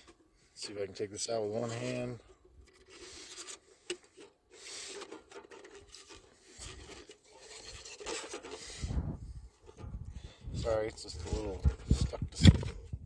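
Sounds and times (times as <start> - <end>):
plastic and metal scraping: 0.0 - 0.3, 1.3 - 13.0
low thump: 8.9 - 10.0.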